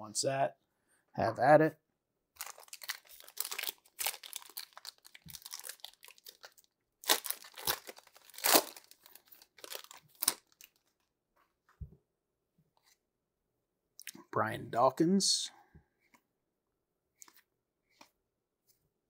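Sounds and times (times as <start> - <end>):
card pack wrapper crinkling: 2.4 - 10.9
trading cards rustling: 2.4 - 11.0.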